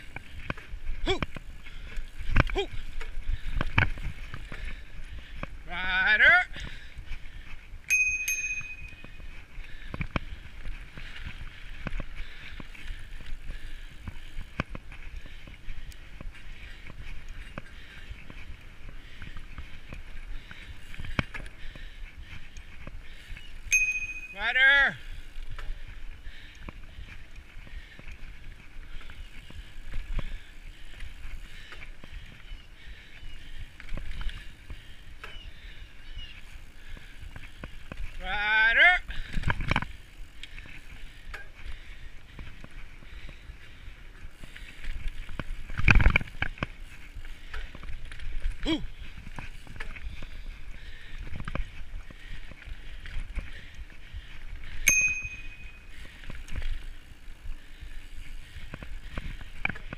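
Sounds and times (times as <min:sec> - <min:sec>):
bike knocking and rattling: 0:00.0 - 0:05.8, 0:06.5 - 0:59.9
bicycle bell ringing: 0:07.9 - 0:09.4, 0:23.7 - 0:24.6, 0:54.8 - 0:55.9.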